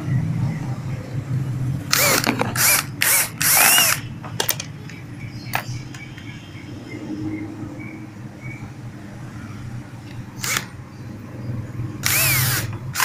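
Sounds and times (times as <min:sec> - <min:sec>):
power screwdriver whining: 0:01.9 - 0:04.0, 0:10.4 - 0:10.7, 0:12.0 - 0:13.0.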